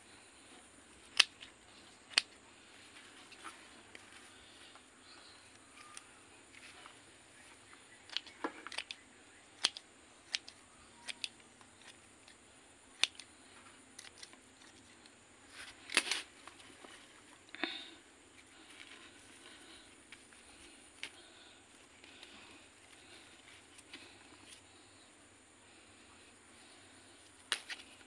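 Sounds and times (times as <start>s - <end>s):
sharp clicks and snaps: 1.0s - 1.5s, 2.1s - 2.4s, 8.0s - 9.0s, 9.6s - 13.3s.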